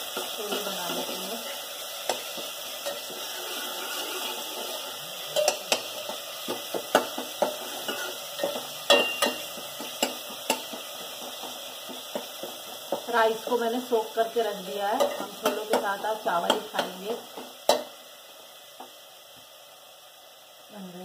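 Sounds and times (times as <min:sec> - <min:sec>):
paste sizzling in oil: 0:00.0 - 0:21.0
ladle scraping and clinking pot: 0:00.1 - 0:12.5.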